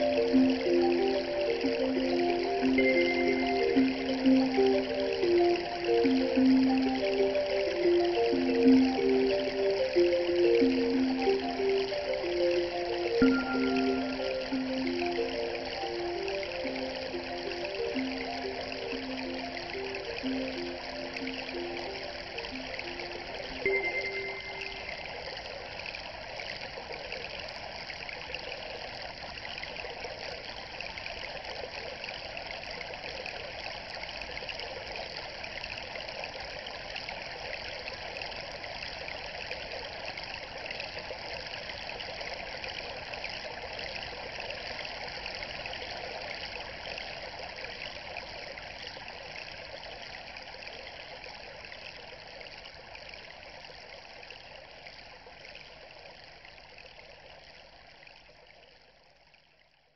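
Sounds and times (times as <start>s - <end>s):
water trickling and splashing: 0.0s - 59.4s.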